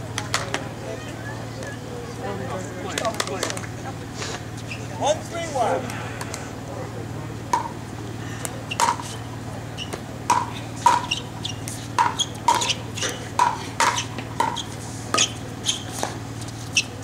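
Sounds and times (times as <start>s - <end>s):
ball bouncing on court: 8.7s - 9.1s, 9.8s - 12.8s, 13.4s - 16.2s.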